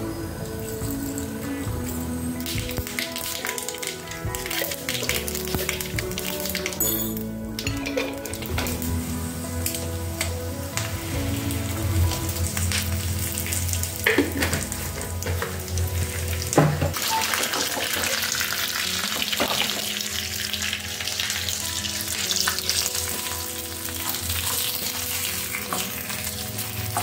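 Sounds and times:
soft background music: 0.0s - 27.0s
spices sizzling in hot oil: 0.0s - 27.0s
sharp clinks: 6.8s - 7.3s.

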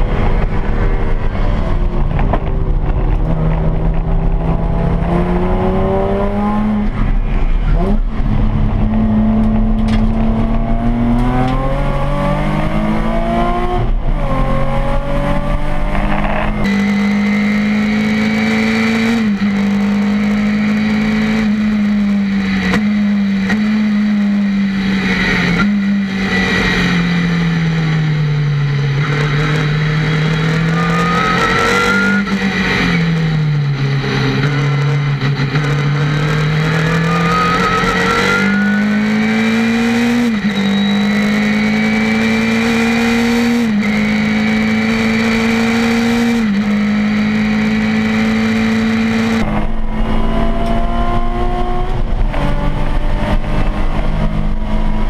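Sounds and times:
race car engine at full throttle: 0.0s - 55.0s
thin rising whine: 36.1s - 42.6s.

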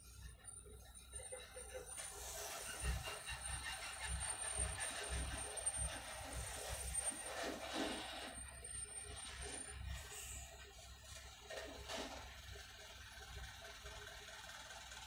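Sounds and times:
low engine rumble of traffic: 0.0s - 15.0s.

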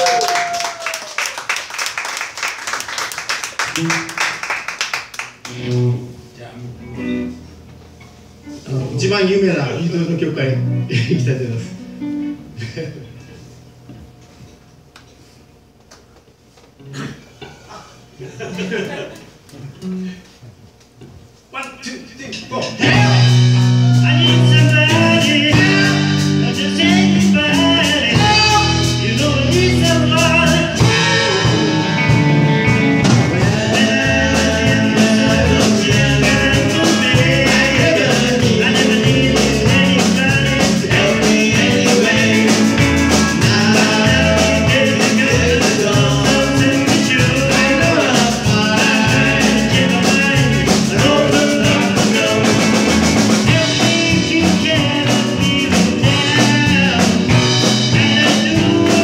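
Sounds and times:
live rock band playing: 3.8s - 4.4s, 5.3s - 7.7s, 10.0s - 12.6s, 22.7s - 59.0s.

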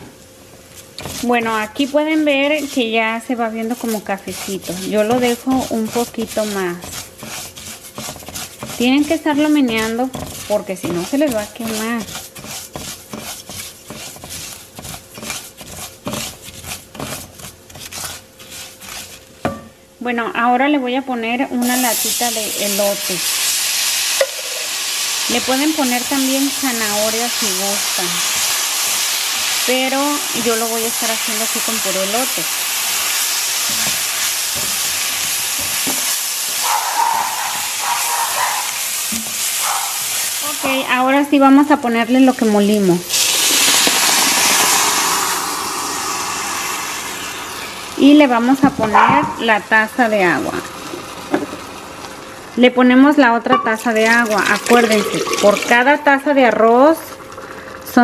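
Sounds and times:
rice sizzling in a hot pot: 0.6s - 19.6s, 21.6s - 48.8s, 49.4s - 52.6s
spatula scraping a pot: 0.9s - 19.4s, 29.7s - 37.8s.

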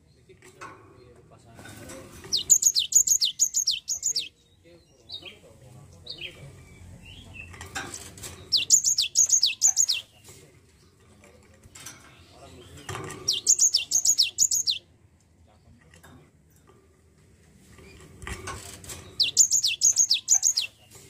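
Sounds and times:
bird singing high notes: 2.3s - 4.3s, 8.5s - 10.0s, 13.3s - 14.8s, 19.2s - 20.7s.

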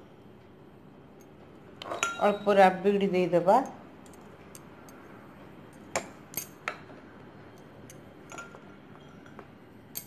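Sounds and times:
metal spoon clinking on glass: 1.8s - 2.4s.

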